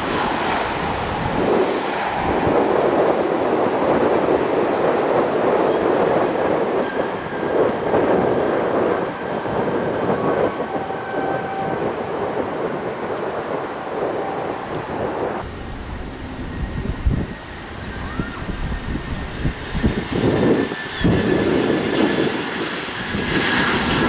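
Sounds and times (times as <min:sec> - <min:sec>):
jet engines rumbling: 0:00.0 - 0:24.0.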